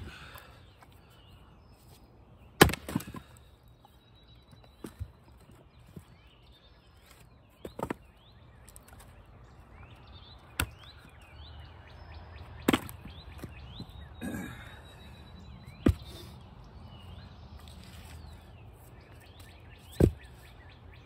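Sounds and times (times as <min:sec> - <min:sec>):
small birds chirping: 0:00.0 - 0:21.0
splitting tool striking wood: 0:02.6 - 0:03.2.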